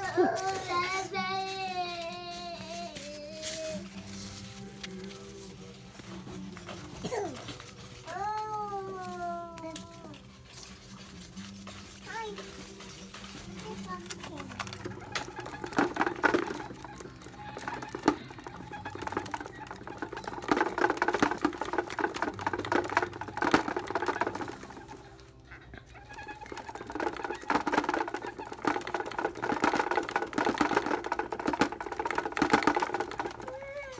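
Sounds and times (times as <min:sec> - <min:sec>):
exercise wheel rattling clicks: 0:11.6 - 0:33.9.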